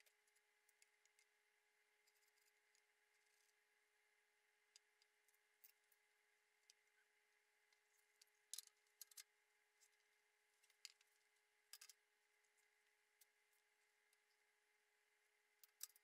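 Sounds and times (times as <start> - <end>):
faint high hum: 0.0 - 16.0.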